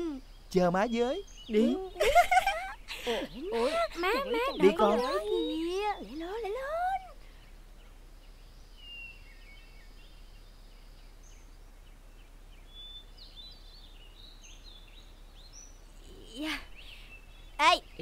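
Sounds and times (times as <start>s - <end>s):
background hiss: 0.0s - 18.0s
faint birds chirping: 0.0s - 18.0s
thin steady high tone: 0.9s - 7.3s.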